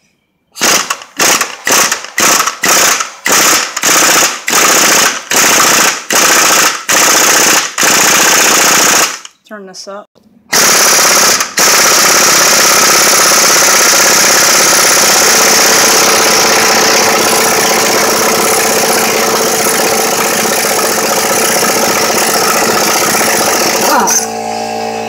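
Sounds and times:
impact wrench hammering: 0:00.6 - 0:09.3, 0:10.5 - 0:24.5.

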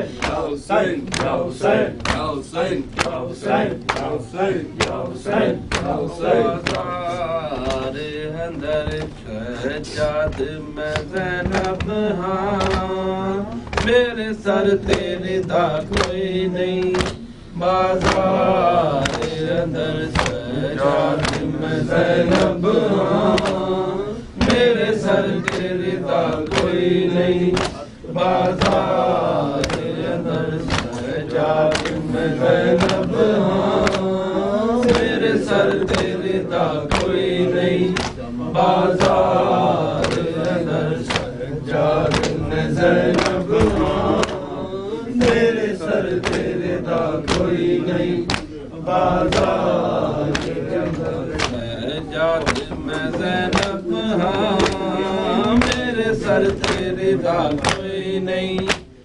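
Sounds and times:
men chanting a lament: 0:00.0 - 0:59.0
flat-hand chest-beating: 0:24.4 - 0:34.2, 0:34.8 - 0:38.2.

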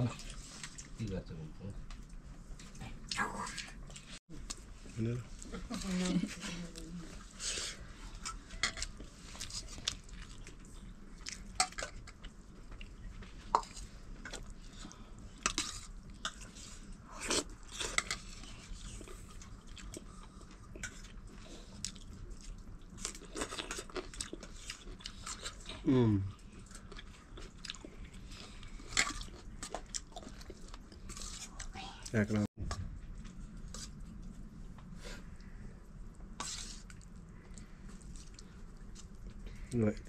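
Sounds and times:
person chewing: 0:07.2 - 0:31.7, 0:36.4 - 0:39.7.

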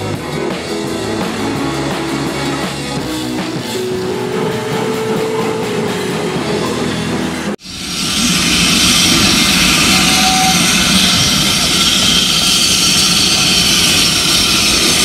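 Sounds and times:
steam locomotive hissing steam: 0:04.7 - 0:15.0.

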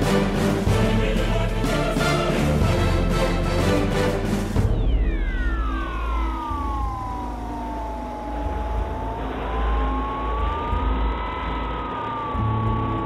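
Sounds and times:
electric motor and propeller whine: 0:04.8 - 0:13.0.

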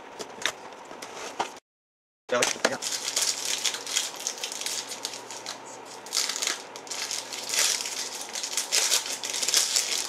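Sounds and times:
wrapper tearing and crinkling: 0:02.3 - 0:10.0.

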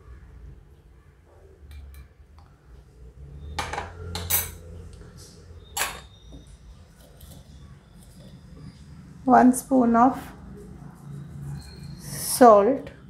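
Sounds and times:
metal utensils clinking: 0:03.6 - 0:04.7.

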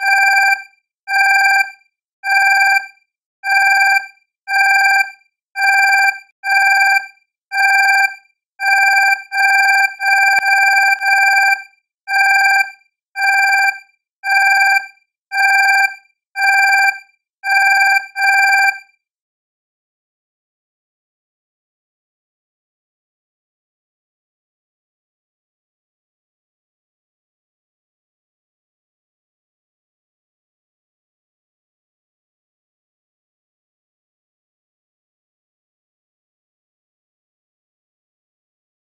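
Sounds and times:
electronic beeping: 0:03.5 - 0:18.8.

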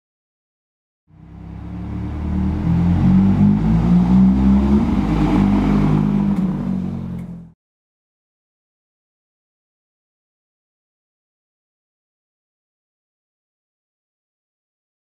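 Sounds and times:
car engine at low revs: 0:01.1 - 0:07.6.

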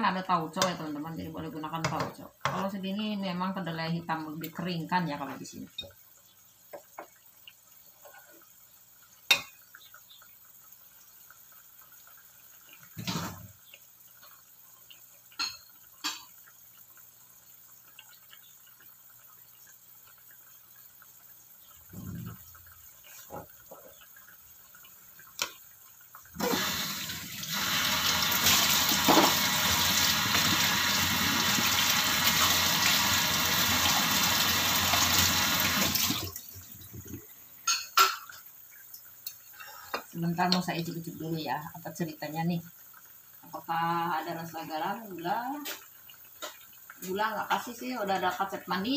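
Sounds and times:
tap water running: 0:00.0 - 0:48.9.

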